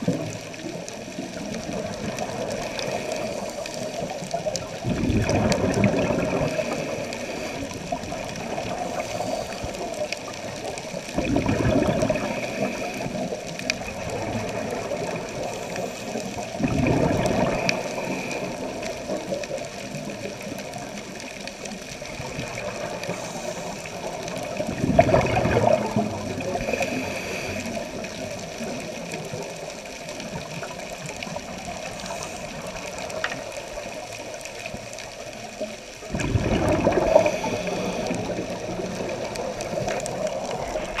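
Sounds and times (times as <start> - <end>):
gurgling regulator bubbles: 0.0 - 41.0
underwater hiss: 0.0 - 41.0.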